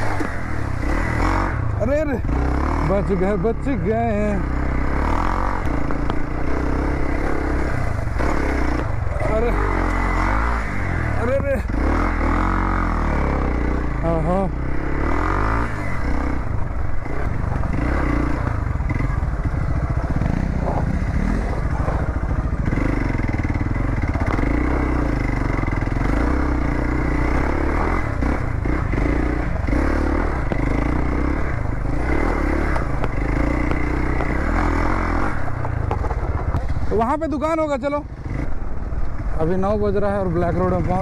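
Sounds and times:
motorcycle engine running: 0.0 - 41.0.

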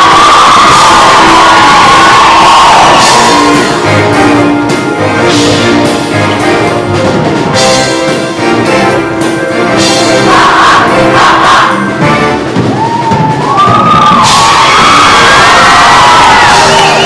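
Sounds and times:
brass-heavy backing music: 0.0 - 17.0
choir singing: 8.5 - 12.4.

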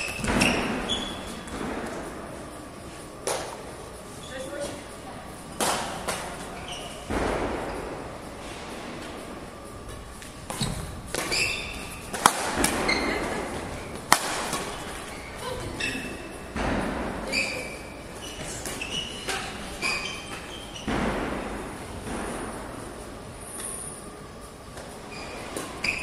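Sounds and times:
shoes squeaking on court: 0.0 - 2.2, 2.8 - 8.0, 9.6 - 16.4, 17.2 - 21.0, 24.7 - 26.0
racket hitting shuttlecock: 5.5 - 6.5, 10.5 - 15.2.

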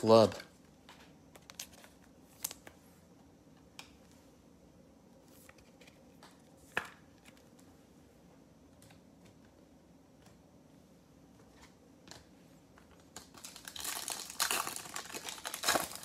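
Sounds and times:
trading cards handled: 0.9 - 2.8.

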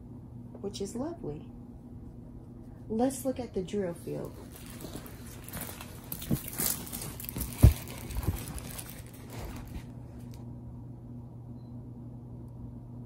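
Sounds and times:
low steady hum: 0.0 - 13.0
canvas and plastic film rustling: 4.0 - 10.4.

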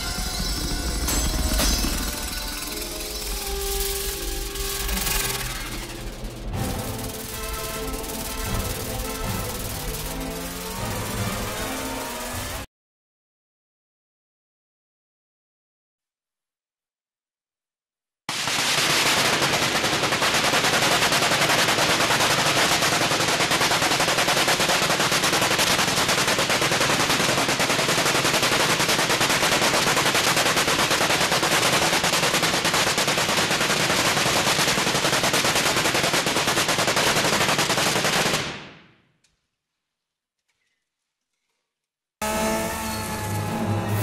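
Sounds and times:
electric arcs crackling: 1.7 - 12.6.

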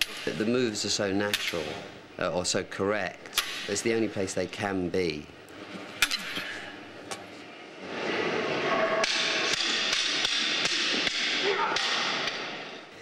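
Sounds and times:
practice poles clacking: 9.0 - 12.8.

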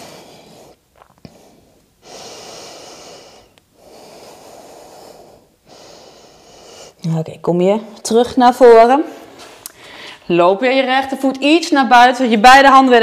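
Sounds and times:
woman breathing: 0.0 - 7.0, 9.0 - 10.3.

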